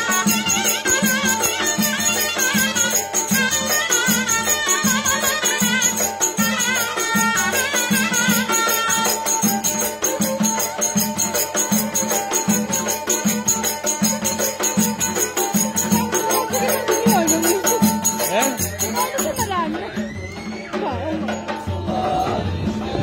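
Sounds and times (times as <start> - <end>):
folk wedding music on reed pipe: 0.0 - 9.2
drum beating steadily: 0.0 - 23.0
rhythmic high rattle: 0.0 - 23.0.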